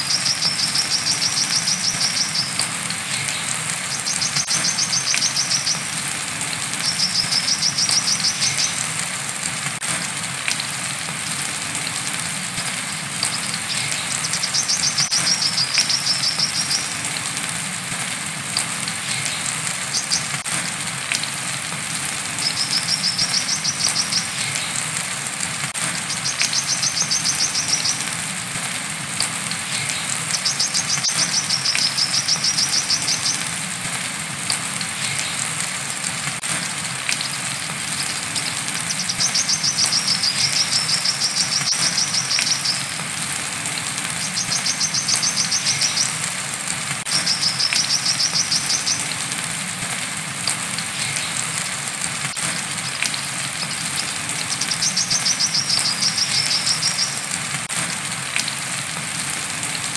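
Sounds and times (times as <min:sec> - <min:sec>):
bird singing high trills: 0:00.0 - 0:05.9
steady rain: 0:00.0 - 0:59.9.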